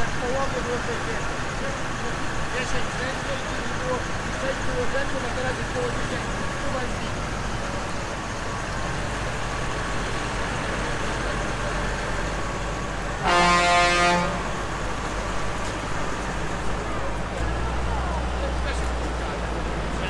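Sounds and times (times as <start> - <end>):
tractor diesel engines running: 0.0 - 20.0
vehicle horn blast: 13.2 - 14.6.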